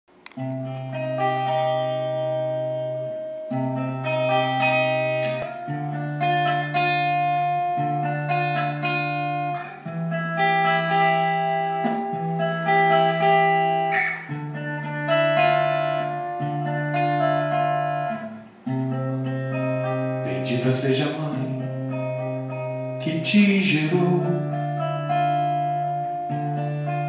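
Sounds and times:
plucked guitar notes: 0.1 - 27.0.

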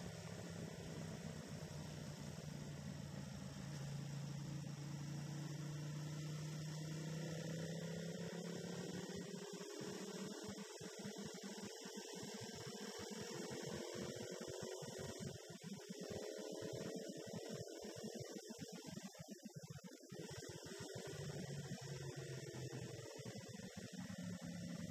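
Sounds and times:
motorcycle engine humming: 0.0 - 17.8.

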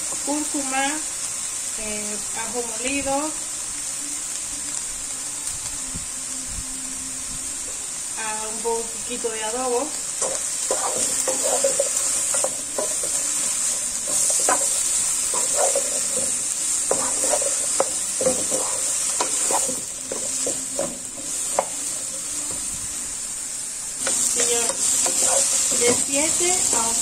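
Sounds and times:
vegetables sizzling in oil: 0.0 - 27.0
spatula scraping a pan: 10.2 - 21.7, 24.0 - 26.2.

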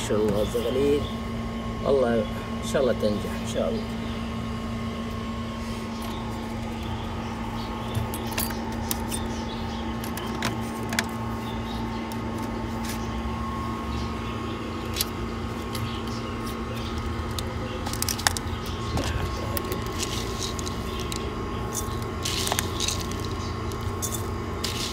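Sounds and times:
mechanical hum with low rumble: 0.0 - 24.9.

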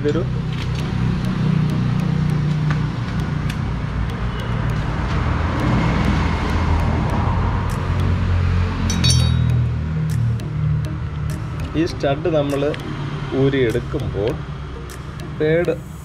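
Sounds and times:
metal clicks and clinks: 8.9 - 9.7.

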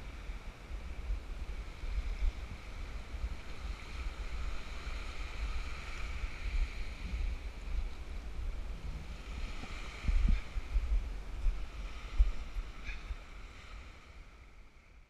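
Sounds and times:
small waves washing on beach: 0.0 - 15.0
wind buffeting microphone: 0.0 - 15.0.

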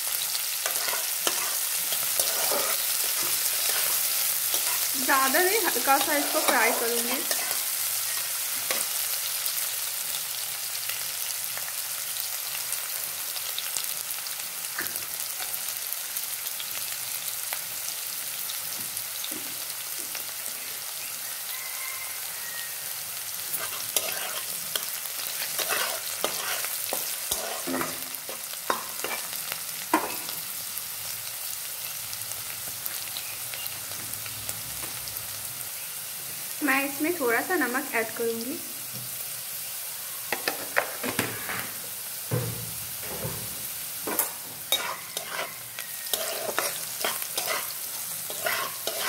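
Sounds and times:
vegetables sizzling in oil: 0.0 - 49.0
spatula scraping and knocking pan: 0.6 - 7.6, 23.5 - 29.3, 44.1 - 47.7, 48.3 - 49.0.

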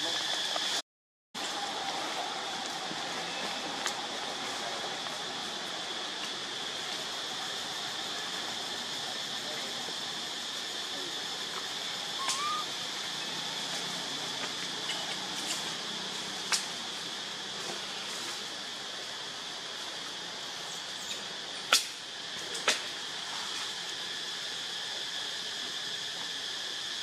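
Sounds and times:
insects droning: 0.0 - 0.8, 1.4 - 27.0
background hiss: 1.4 - 27.0
short rising squeak: 12.2 - 12.7.

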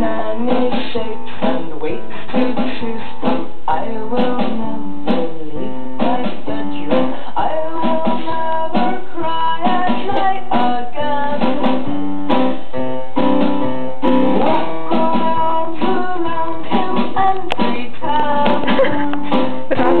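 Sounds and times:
guitar music: 11.9 - 20.0.

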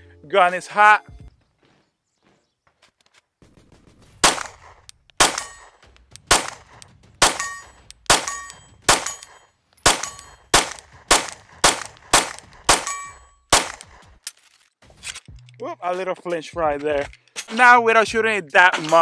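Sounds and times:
pistol shots: 4.2 - 14.0
short metallic ring: 7.4 - 10.5, 12.8 - 13.5.

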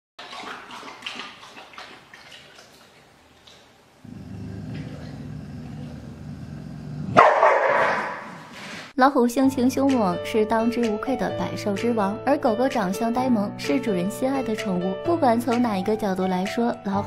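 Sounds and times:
dog lapping water from bowl: 0.2 - 3.9
dog snarling bark: 7.0 - 8.4.

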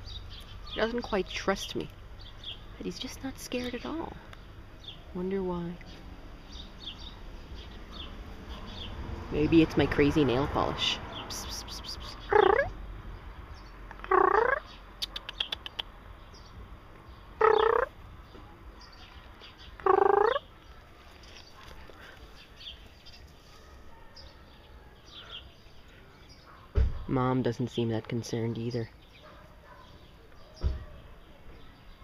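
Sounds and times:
kitten meowing: 17.4 - 17.9.

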